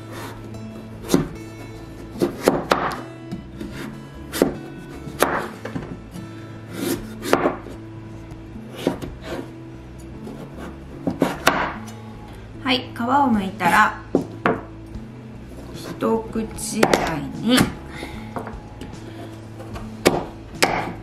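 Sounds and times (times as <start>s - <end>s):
knife cutting through squash rind: 0.1s - 3.0s, 6.7s - 7.7s.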